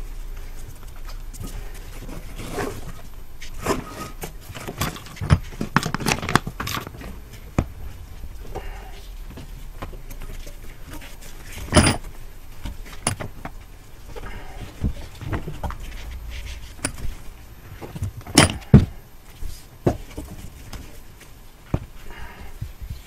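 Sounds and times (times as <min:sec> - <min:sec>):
heat wrap rustling and scraping: 0:00.0 - 0:23.0
metal knocks and clanks: 0:03.6 - 0:19.0.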